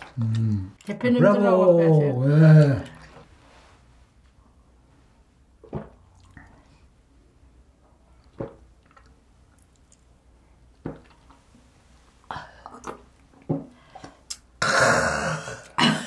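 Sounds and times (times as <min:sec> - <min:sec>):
man sipping and swallowing: 0:08.2 - 0:11.6.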